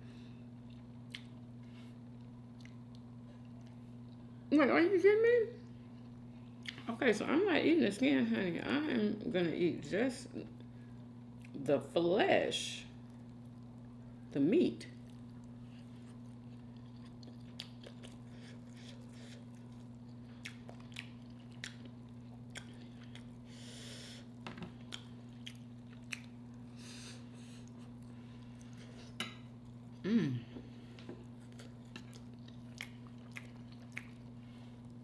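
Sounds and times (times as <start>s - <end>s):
low electrical hum: 0.0s - 35.0s
close chewing: 15.0s - 23.4s, 24.8s - 26.7s, 31.2s - 35.0s
lip smacks: 24.9s - 26.4s, 31.6s - 34.3s
person humming: 30.0s - 30.6s.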